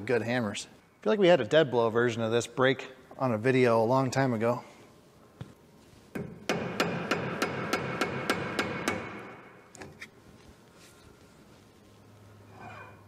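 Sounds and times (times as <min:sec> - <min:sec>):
hammer striking metal: 0:06.2 - 0:09.5.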